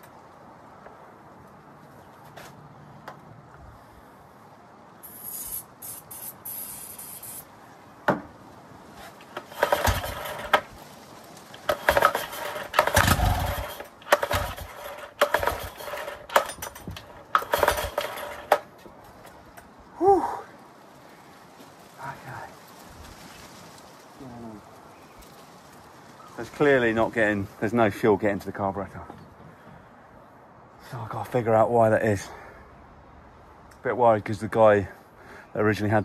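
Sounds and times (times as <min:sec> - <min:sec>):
starting spray hiss: 0:05.0 - 0:07.5, 0:09.4 - 0:10.7
outboard engine pull-starter cranking: 0:09.4 - 0:10.7, 0:11.5 - 0:18.8.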